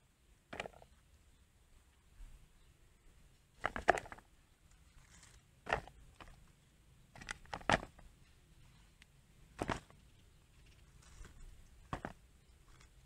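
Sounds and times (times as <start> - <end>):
eggplants knocking in plastic basket: 3.6 - 4.2, 5.7 - 6.4, 7.2 - 8.0, 9.6 - 10.0, 11.9 - 12.2.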